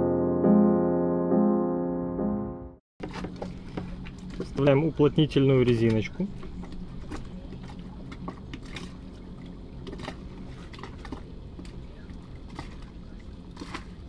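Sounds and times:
steady low hum: 3.0s - 14.0s.

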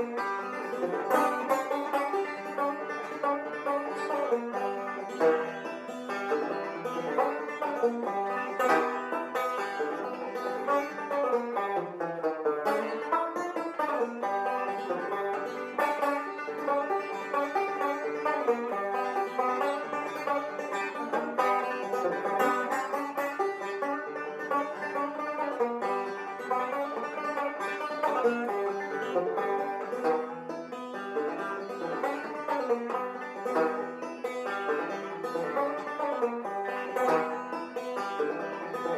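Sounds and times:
banjo tune: 0.0s - 38.9s.

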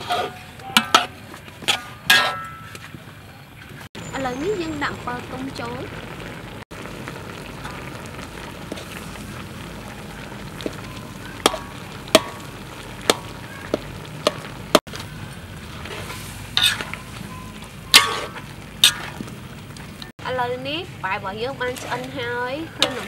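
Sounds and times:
metal spatula scraping a pan: 0.0s - 2.9s, 15.6s - 19.3s, 21.5s - 23.0s
stir-fry sizzling in a wok: 3.9s - 23.0s.

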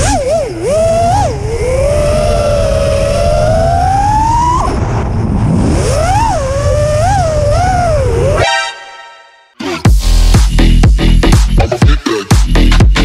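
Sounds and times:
drone motors whining: 0.0s - 8.5s
low wind rumble: 0.0s - 8.6s.

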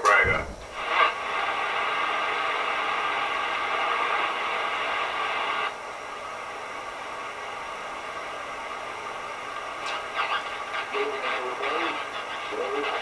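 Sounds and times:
radio speaker static hiss: 0.0s - 13.0s.

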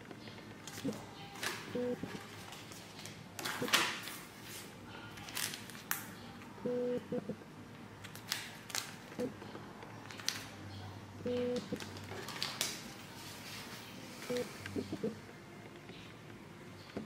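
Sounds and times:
paper and plastic rustling: 0.5s - 6.2s, 8.0s - 9.2s, 9.9s - 10.7s, 11.8s - 14.7s.

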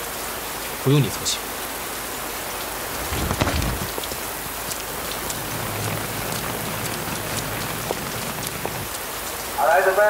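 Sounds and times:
steady rain falling: 0.0s - 10.0s
low thud: 3.0s - 4.2s.

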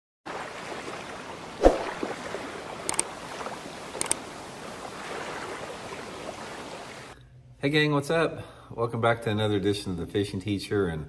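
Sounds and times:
water-like rushing noise: 0.3s - 7.2s.

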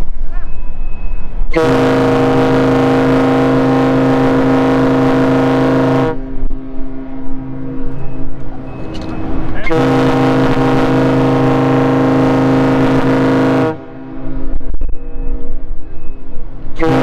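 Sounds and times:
ship's horn deep blast: 1.5s - 14.6s, 16.8s - 17.0s.

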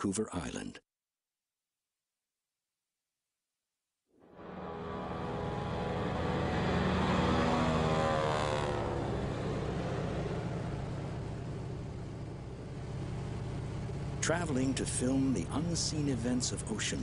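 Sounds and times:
propeller plane engine droning: 4.2s - 17.0s.

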